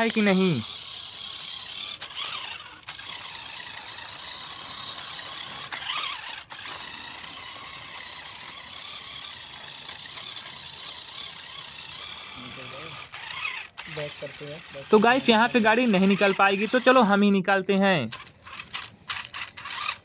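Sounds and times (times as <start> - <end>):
wheels churning in mud: 0.0 - 17.2, 18.0 - 20.0
toy truck electric motor: 0.0 - 20.0.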